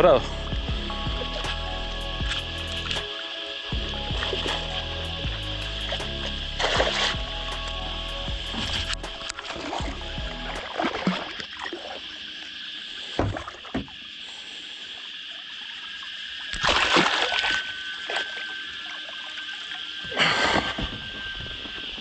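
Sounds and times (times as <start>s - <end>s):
high insect drone: 0.0s - 22.0s
fish thrashing and splashing: 5.8s - 7.2s, 8.5s - 12.0s, 16.5s - 19.1s.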